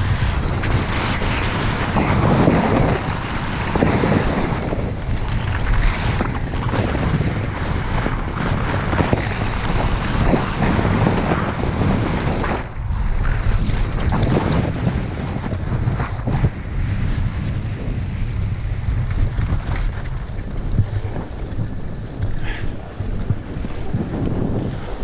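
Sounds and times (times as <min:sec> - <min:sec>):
skis scraping over snow: 0:00.0 - 0:25.0
wind rushing over microphone: 0:00.0 - 0:25.0.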